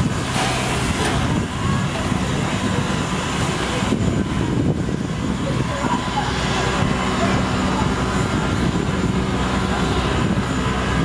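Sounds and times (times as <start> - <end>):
steam hissing: 0.0 - 3.8.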